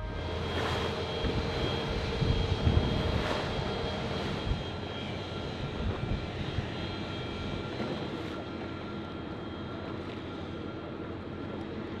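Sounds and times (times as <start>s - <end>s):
engine running: 0.0s - 8.4s.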